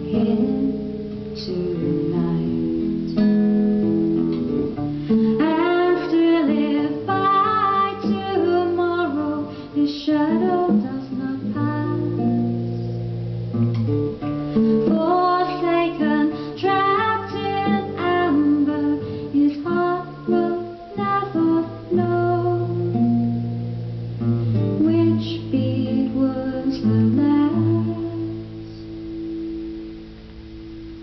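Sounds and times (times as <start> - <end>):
person singing: 0.0 - 3.3, 5.1 - 12.9, 14.6 - 23.0, 24.7 - 29.0
nylon-string guitar: 0.0 - 31.0.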